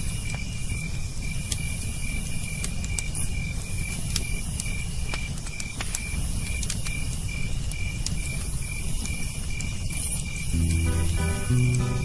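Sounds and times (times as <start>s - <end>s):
crickets chirping: 0.0s - 12.0s
sharp crackles: 0.0s - 12.0s
shrill insect hiss: 9.6s - 12.0s.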